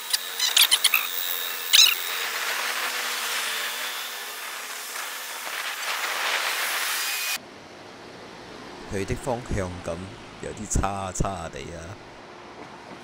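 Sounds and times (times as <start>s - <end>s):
street traffic engine hum: 7.3s - 13.0s.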